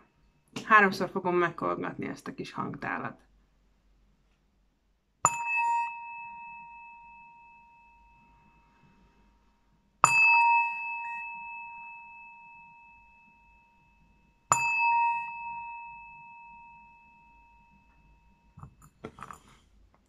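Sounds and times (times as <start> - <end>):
singing bowl ringing: 5.3 - 18.6.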